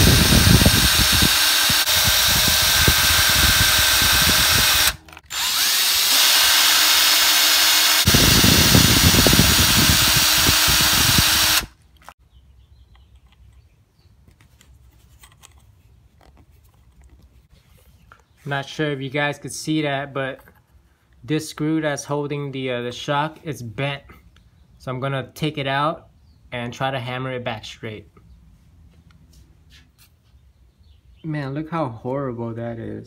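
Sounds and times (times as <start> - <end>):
cordless drill running: 0.0 - 11.8.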